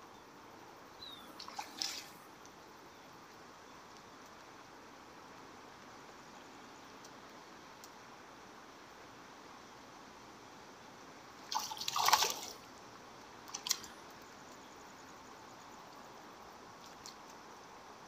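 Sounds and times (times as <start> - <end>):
fish splashing in water: 1.4 - 2.2, 11.4 - 12.6, 13.5 - 14.0.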